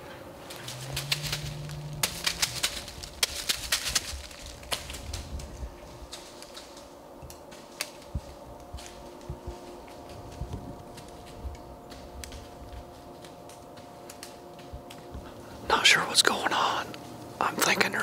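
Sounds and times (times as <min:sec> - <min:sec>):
short low hum: 0:00.0 - 0:06.3.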